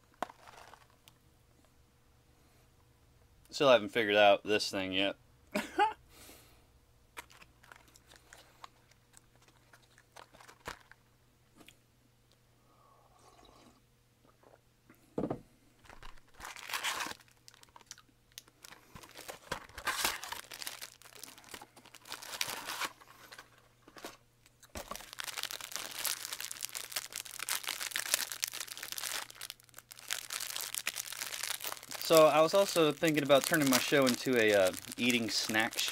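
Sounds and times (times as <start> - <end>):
plastic wrapper crinkling and tearing: 0.1 - 1.2, 7.2 - 11.0, 15.8 - 35.9.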